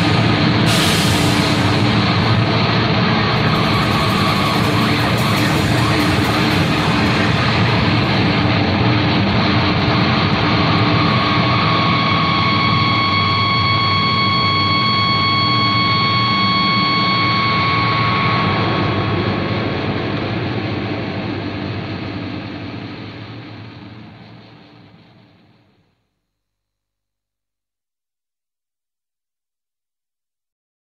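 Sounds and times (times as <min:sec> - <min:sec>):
high held tones: 0:00.0 - 0:09.0
dense noisy soundtrack music: 0:00.0 - 0:21.0.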